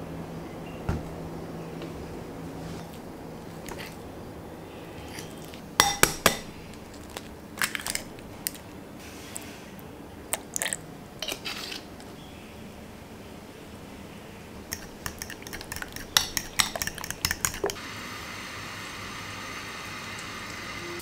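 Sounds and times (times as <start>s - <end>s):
fork clinking on glass bowl: 14.7s - 17.8s.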